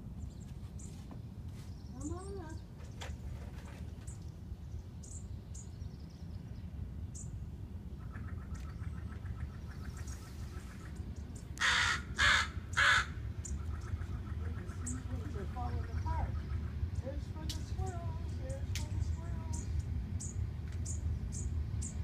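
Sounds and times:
crow cawing: 11.6s - 16.7s.

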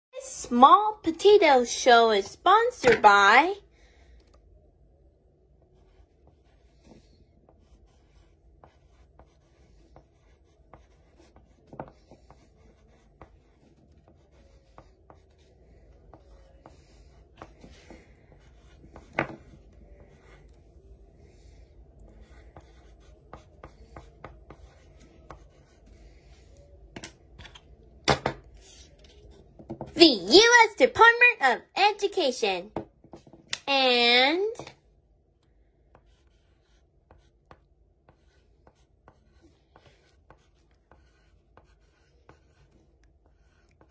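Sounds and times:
pencil scratching on paper: 5.6s - 20.8s, 22.0s - 26.7s, 35.9s - 43.9s.

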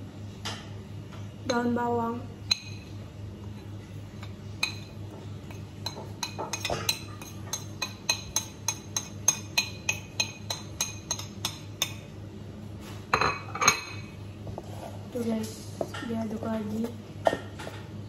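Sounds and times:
spoon clinking against a plate: 2.4s - 3.0s, 3.6s - 12.1s, 13.2s - 14.1s.

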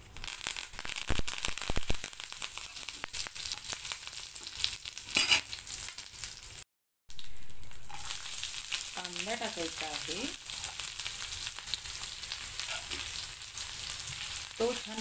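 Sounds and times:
spices sizzling in hot oil: 0.0s - 15.0s.

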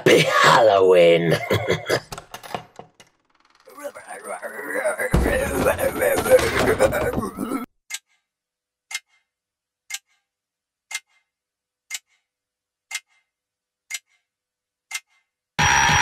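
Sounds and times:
clock ticking: 3.7s - 15.4s.

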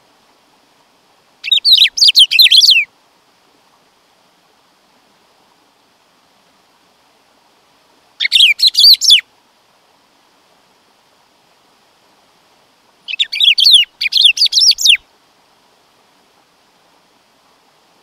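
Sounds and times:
bird singing whistled notes: 1.4s - 2.9s, 8.2s - 9.2s, 13.1s - 15.0s.

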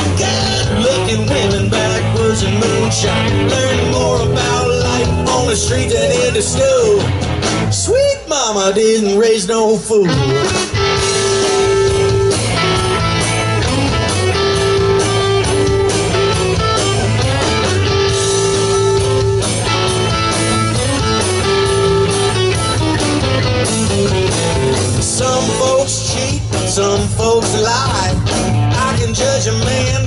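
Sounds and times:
electric guitar lead: 0.0s - 8.3s, 9.9s - 30.0s
bass guitar: 0.0s - 30.0s
drums: 0.0s - 30.0s.

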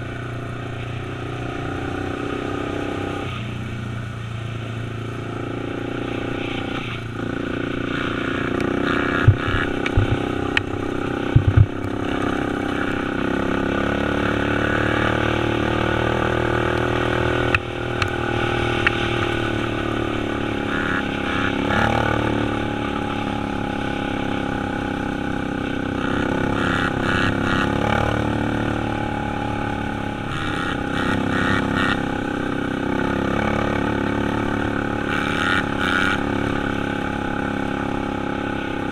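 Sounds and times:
dirt bike engine revving: 4.5s - 38.9s
sharp knocks: 9.2s - 10.7s, 11.3s - 11.8s.

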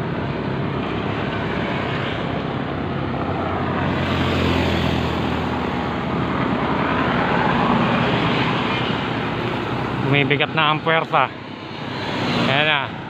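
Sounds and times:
passing traffic engine drone: 0.0s - 13.0s
wind and road noise: 0.0s - 13.0s.

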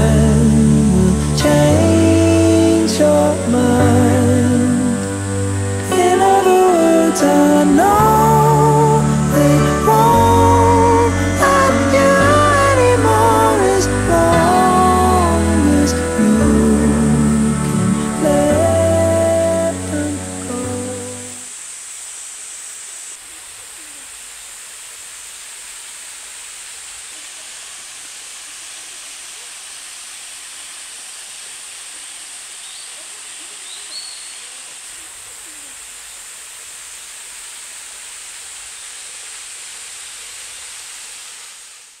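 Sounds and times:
waterfall hissing into a pool: 0.0s - 42.0s
faint high chirp: 32.6s - 34.8s.

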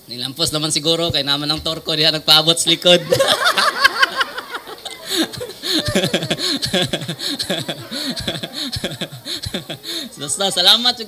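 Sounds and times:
man chuckling into a microphone: 3.0s - 10.0s.

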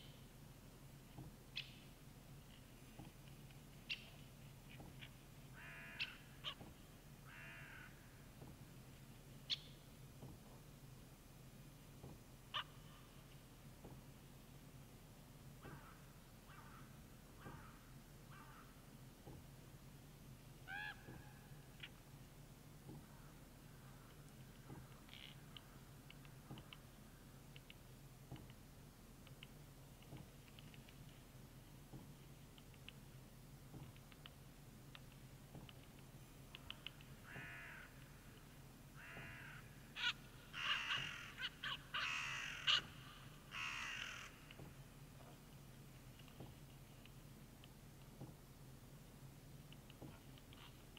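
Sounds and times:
low steady hum: 0.0s - 50.9s
crow calls: 5.5s - 6.6s, 7.2s - 8.2s, 12.5s - 13.2s, 15.6s - 18.8s, 20.6s - 22.0s, 36.6s - 38.2s, 39.0s - 44.6s.

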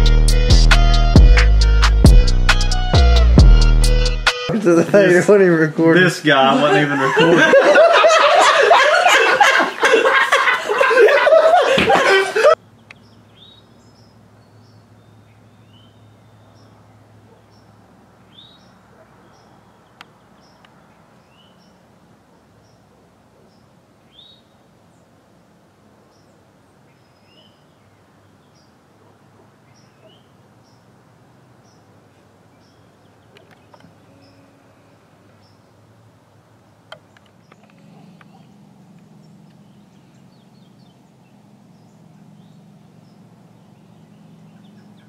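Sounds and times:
outdoor hush: 0.0s - 45.0s
men's voices: 4.5s - 9.1s
men laughing: 6.3s - 12.6s
bird chirps: 12.8s - 24.6s, 26.1s - 28.8s, 29.6s - 30.9s, 32.6s - 35.8s, 37.0s - 45.0s.

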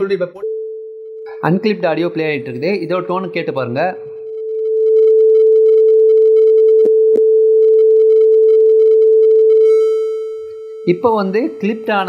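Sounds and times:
sine test tone: 0.3s - 1.4s, 4.2s - 12.0s.

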